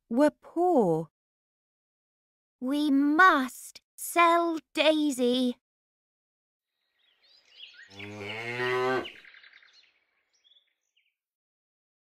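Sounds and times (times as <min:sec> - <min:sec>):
faint bird chirps: 0:06.8 - 0:11.2
cow mooing: 0:07.9 - 0:09.2.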